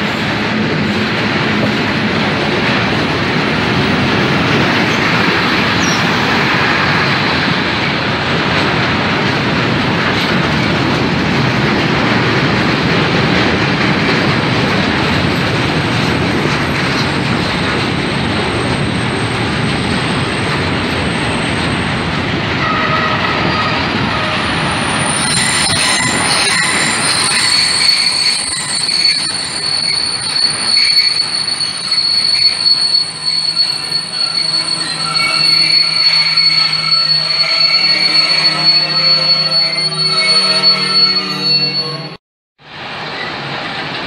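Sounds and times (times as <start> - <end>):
freight train wheels rumbling: 0.0 - 44.0
wheel squealing: 23.3 - 42.1.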